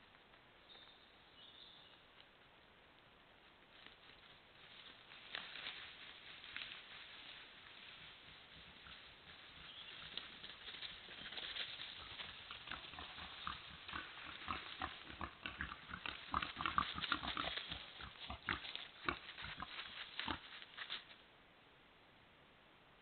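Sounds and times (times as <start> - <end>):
animal rustling through dry leaves: 3.4 - 21.2.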